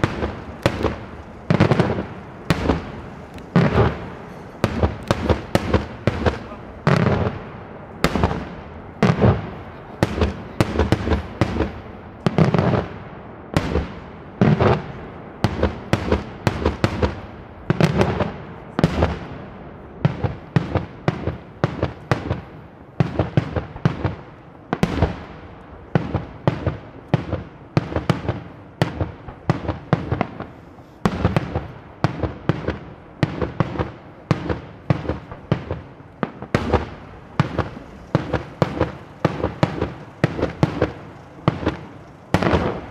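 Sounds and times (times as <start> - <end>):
firework shells bursting: 0.0 - 7.4, 25.9 - 42.9.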